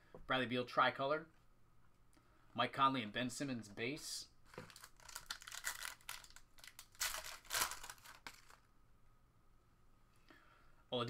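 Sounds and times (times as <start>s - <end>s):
foil wrapper tearing and crinkling: 4.5s - 8.7s.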